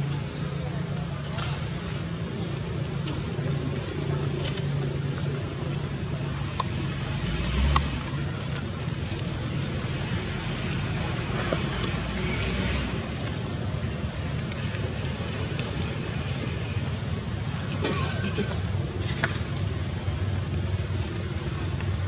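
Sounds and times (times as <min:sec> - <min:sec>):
road traffic noise: 0:00.0 - 0:22.0.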